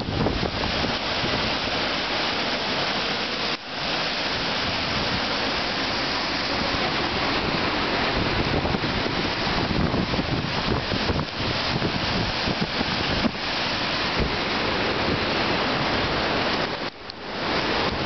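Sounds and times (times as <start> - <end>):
wind buffeting microphone: 0.0 - 3.1, 4.0 - 18.0
flood water rushing: 0.0 - 18.0.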